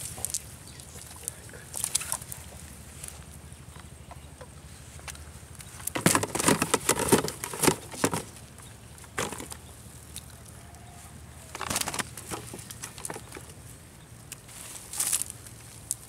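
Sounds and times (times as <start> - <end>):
fish flapping and slapping: 11.5 - 13.5.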